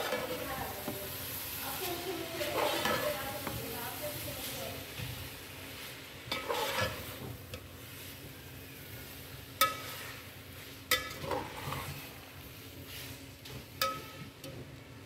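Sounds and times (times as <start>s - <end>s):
light sizzle from pan: 0.0s - 15.0s
spatula stirring spaghetti in pot: 0.0s - 15.0s
spatula clinking on metal pot: 9.6s - 9.9s, 10.9s - 11.4s, 13.8s - 14.3s.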